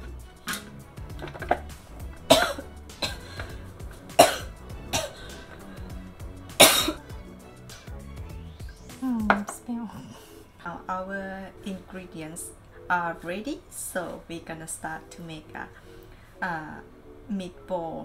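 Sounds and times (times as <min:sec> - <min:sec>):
woman coughing: 0:02.3 - 0:03.5, 0:04.2 - 0:05.4, 0:06.6 - 0:07.1.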